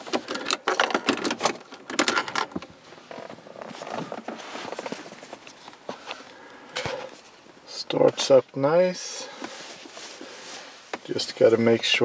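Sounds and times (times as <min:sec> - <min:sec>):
soft rustling: 0:02.8 - 0:12.0.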